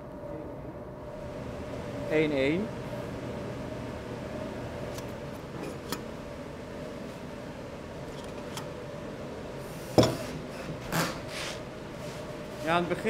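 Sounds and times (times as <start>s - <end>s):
workshop hum: 0.0s - 13.0s.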